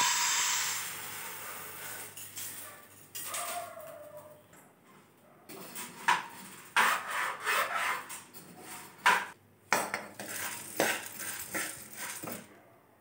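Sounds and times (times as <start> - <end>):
spoon stirring and scraping pan: 5.6 - 12.5
lentils rustling against metal: 10.1 - 12.5.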